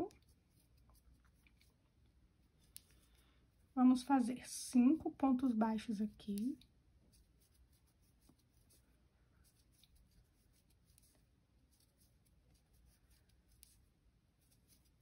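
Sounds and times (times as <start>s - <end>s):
crochet hook ticks and scratching: 0.0s - 1.8s, 2.5s - 3.1s, 4.8s - 8.8s, 9.4s - 13.8s.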